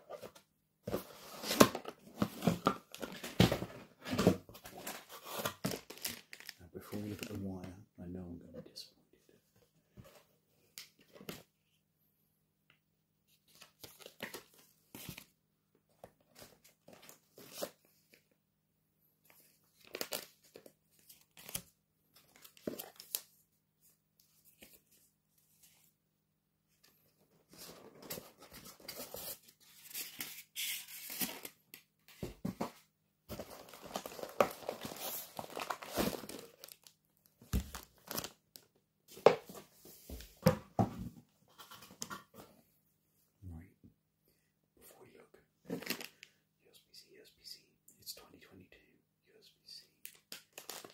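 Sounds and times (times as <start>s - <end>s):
rustling card and plastic wrap: 0.1s - 7.6s, 19.3s - 25.9s, 27.5s - 32.6s, 33.3s - 39.6s, 50.0s - 50.9s.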